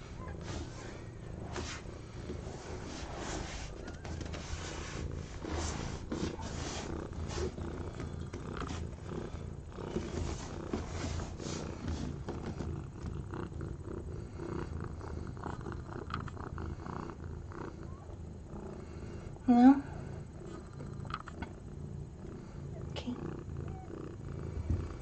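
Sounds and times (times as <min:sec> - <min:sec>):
soft rustles: 0:00.0 - 0:13.4
cat purring: 0:00.0 - 0:25.0.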